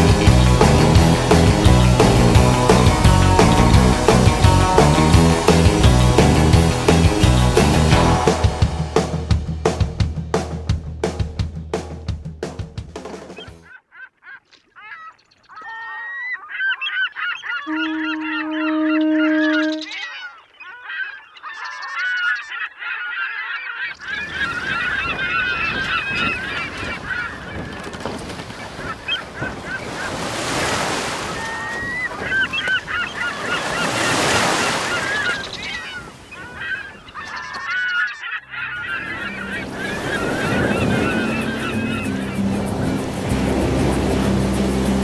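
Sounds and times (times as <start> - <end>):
many birds calling: 13.4 - 44.0
steady low tone: 17.7 - 19.9
rushing wash of noise: 39.1 - 45.0.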